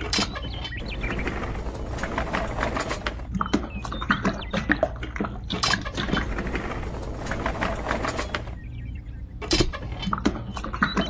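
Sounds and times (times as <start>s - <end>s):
clicking and rattling: 0.0s - 4.3s, 5.5s - 8.7s.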